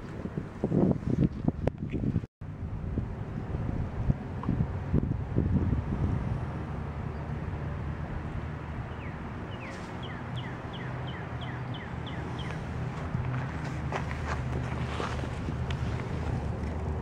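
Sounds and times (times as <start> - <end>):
steady low rumble: 1.5 - 9.4
bird singing short downward notes: 8.3 - 12.6.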